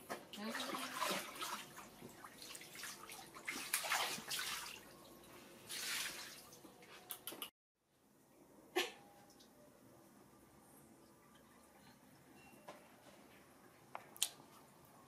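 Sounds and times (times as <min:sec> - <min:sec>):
water splashing and sloshing: 0:00.0 - 0:07.1.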